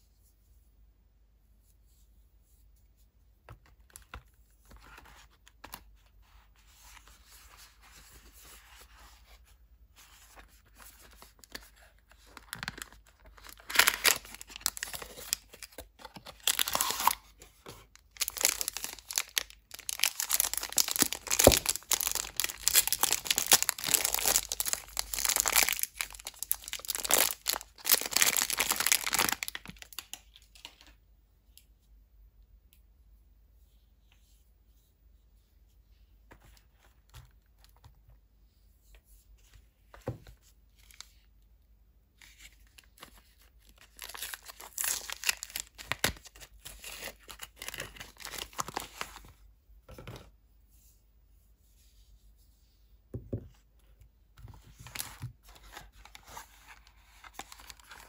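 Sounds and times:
plastic wrapper crinkling and tearing: 0:11.0 - 0:31.0, 0:42.2 - 0:49.3, 0:54.9 - 0:58.0.

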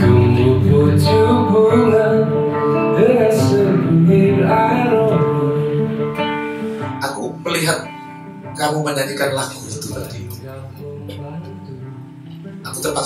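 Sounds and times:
man singing: 0:00.0 - 0:06.2, 0:09.0 - 0:13.0
acoustic guitar strumming: 0:00.0 - 0:13.0.

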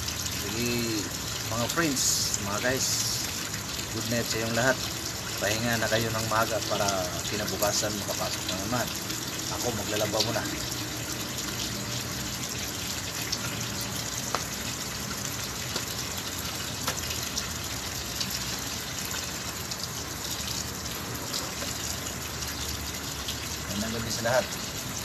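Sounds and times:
water running from a tap: 0:00.0 - 0:25.0.

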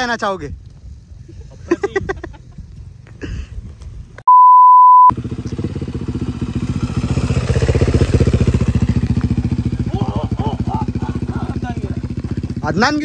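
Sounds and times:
censor bleep: 0:04.3 - 0:05.1
motorcycle engine chugging: 0:05.2 - 0:13.0.

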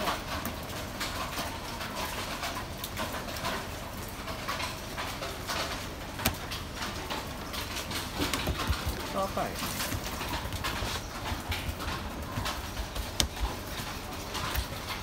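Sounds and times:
light taps and knocks: 0:08.0 - 0:15.0.

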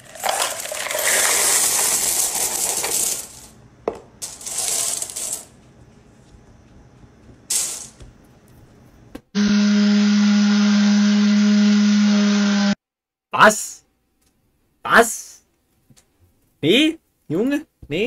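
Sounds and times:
coins rattling in cardboard box: 0:00.0 - 0:03.6, 0:04.2 - 0:05.5, 0:07.5 - 0:08.0.

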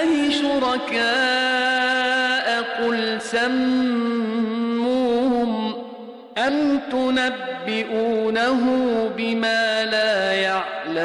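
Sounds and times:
man chanting melodically: 0:00.0 - 0:11.0.

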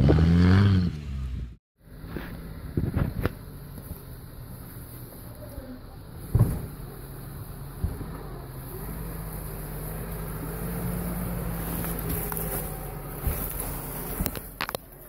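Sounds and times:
car engine running under load: 0:01.8 - 0:15.0
sharp thump: 0:06.2 - 0:06.8.

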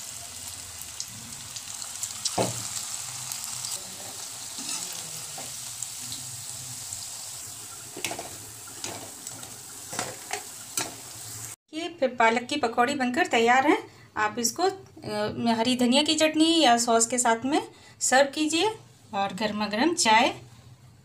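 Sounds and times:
food deep-frying in oil: 0:00.0 - 0:11.6
utensils knocking against pan: 0:08.0 - 0:11.0.

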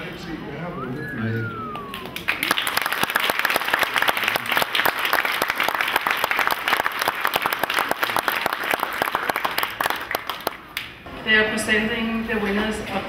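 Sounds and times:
group applauding: 0:01.6 - 0:11.0.

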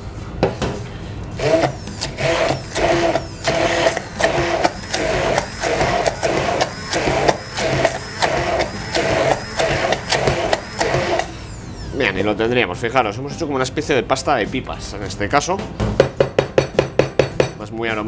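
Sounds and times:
immersion blender pulsing: 0:01.4 - 0:12.3.

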